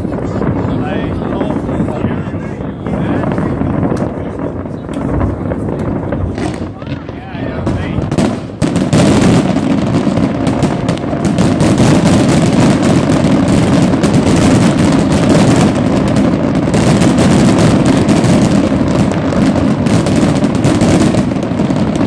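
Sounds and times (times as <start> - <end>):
fireworks bangs and crackling: 0.0 - 22.0.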